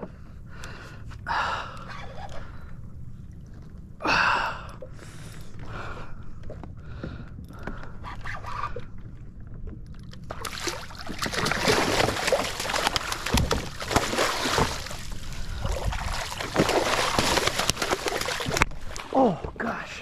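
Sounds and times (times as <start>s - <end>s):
fish thrashing and splashing water: 10.0s - 19.5s.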